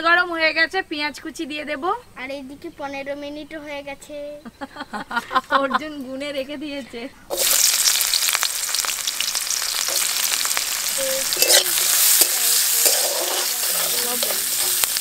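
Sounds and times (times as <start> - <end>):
onions sizzling in hot oil: 7.3 - 15.0
metal spatula scraping pan: 11.0 - 15.0.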